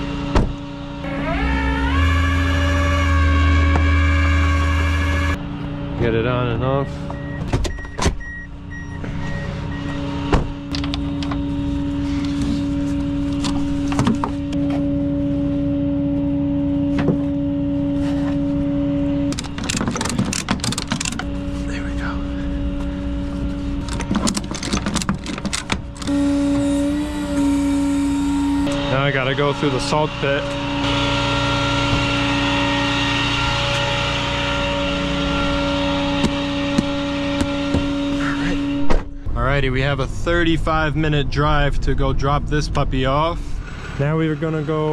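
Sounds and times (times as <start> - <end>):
vehicle engine humming: 0.0 - 44.9
knocks and clicks of wheel strap: 19.3 - 21.3, 23.8 - 26.1.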